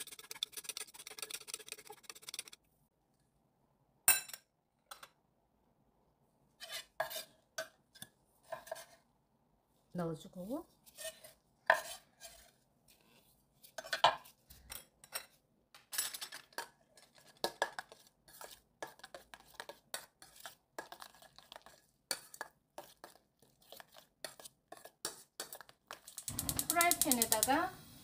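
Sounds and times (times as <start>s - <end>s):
utensil scraping against bowl: 0.0s - 2.6s, 6.6s - 7.4s, 10.8s - 14.4s, 16.5s - 27.6s.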